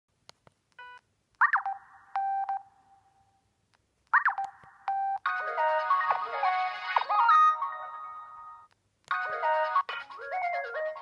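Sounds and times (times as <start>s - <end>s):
ringtone melody from phone speaker: 4.2s - 11.0s.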